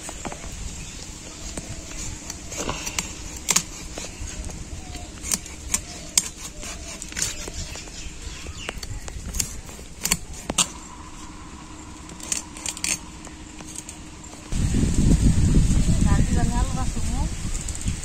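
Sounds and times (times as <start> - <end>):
blade scraping fish scales: 1.6 - 8.4, 9.1 - 14.5.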